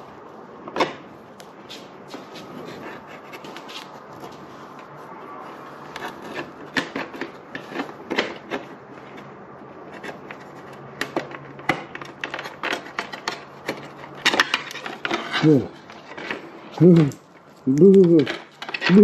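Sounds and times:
plastic panels clicking and rubbing: 5.8 - 19.0.

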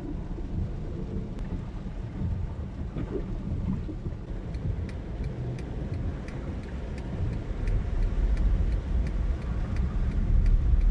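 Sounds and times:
engine and tyres rumbling on wet road: 0.0 - 10.9
light regular ticking: 4.2 - 10.9.

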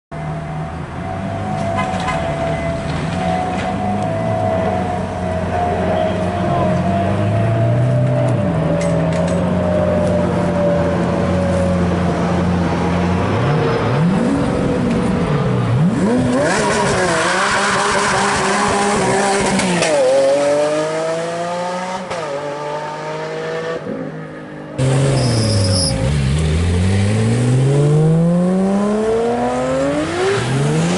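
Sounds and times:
sports car engine revving: 24.8 - 30.9.

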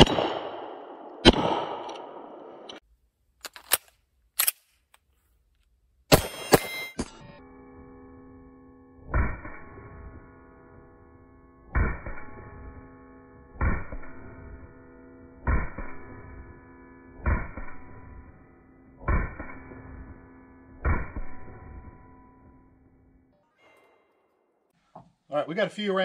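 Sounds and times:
pistol shots: 0.0 - 2.8, 6.1 - 7.1
steel plate target ringing: 6.1 - 23.2.

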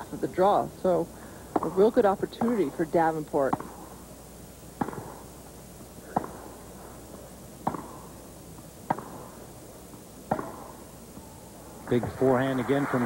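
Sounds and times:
racquets hitting tennis ball: 1.5 - 3.9, 4.8 - 5.3, 6.1 - 6.5, 7.6 - 13.0
stadium hush: 10.3 - 13.0.

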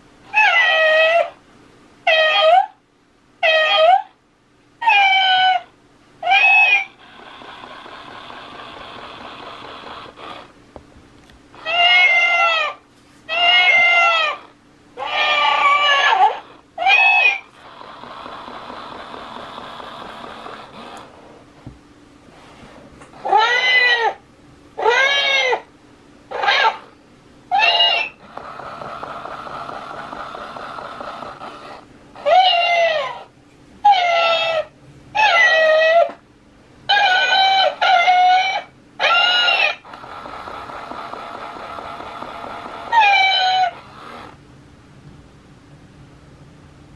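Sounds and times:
toy cat recorded meow: 0.3 - 1.4, 2.1 - 2.8, 3.4 - 4.2, 4.8 - 10.5, 11.6 - 20.8, 23.2 - 24.2, 24.8 - 25.7, 26.3 - 26.9, 27.5 - 36.2, 36.9 - 44.3
toy soft rushing noise: 6.5 - 10.6, 13.5 - 21.4, 27.7 - 31.9, 39.2 - 44.4.

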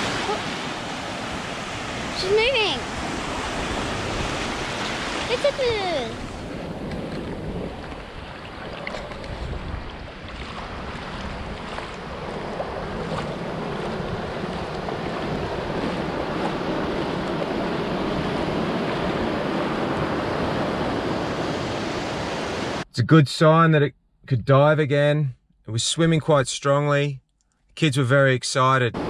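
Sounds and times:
surf washing over sand: 0.0 - 22.8
wind buffeting microphone: 0.0 - 22.8.

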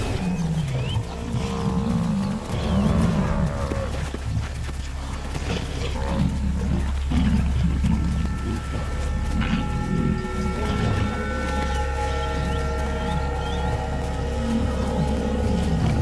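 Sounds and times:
lions growling and snarling: 0.0 - 8.2, 9.3 - 16.0
buffalo bellowing: 5.4 - 16.0.

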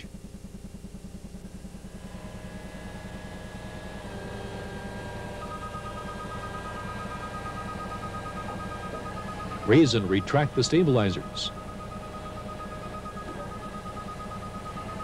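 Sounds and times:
fast repeating high tone: 4.5 - 15.0.

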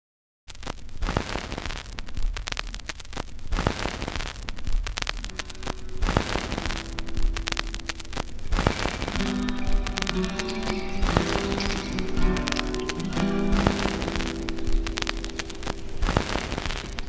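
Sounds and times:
crackling static: 0.5 - 17.0.

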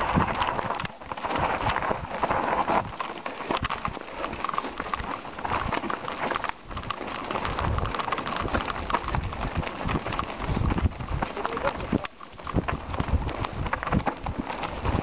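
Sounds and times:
bike rattling: 0.0 - 15.0
bike tyres crunching over stones: 0.0 - 15.0.

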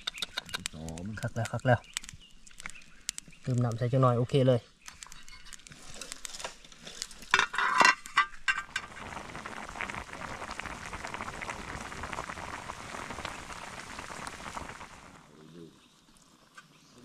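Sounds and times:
stew bubbling: 0.0 - 3.9, 5.0 - 17.0
metal pot clinking: 7.3 - 8.9.

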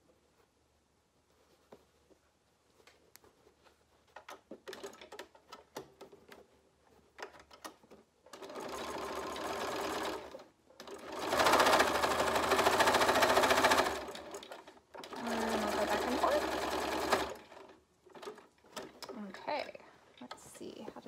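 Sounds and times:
sewing machine stitching: 8.3 - 19.2.

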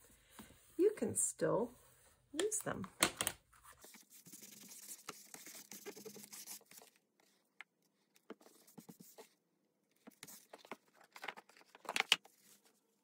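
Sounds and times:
hands rubbing paper: 3.6 - 7.4.

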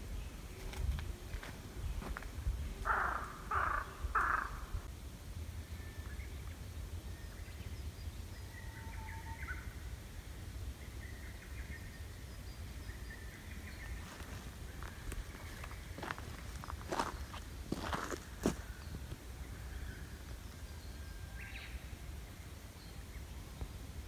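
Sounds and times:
steady low rumble: 0.0 - 8.6, 9.6 - 24.0
crow cawing: 2.8 - 4.9
small birds chirping: 10.7 - 24.0.

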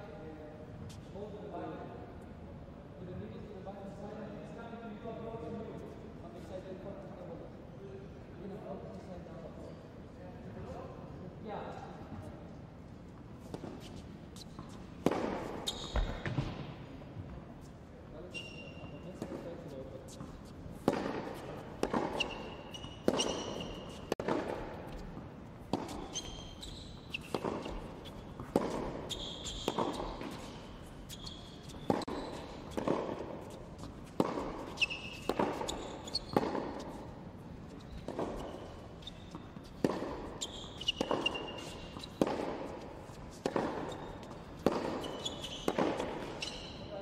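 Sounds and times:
tennis balls bouncing on court: 13.1 - 17.6, 18.8 - 46.9
tennis balls struck by rackets: 13.4 - 16.8, 20.1 - 46.7
shoe squeaks: 13.6 - 16.6, 18.1 - 47.0.

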